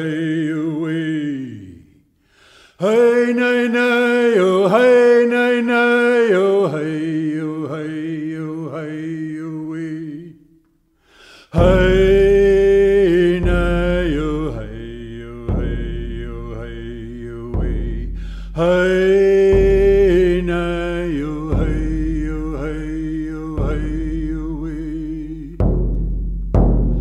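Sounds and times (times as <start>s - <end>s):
deep drum beats: 11.6s - 27.0s.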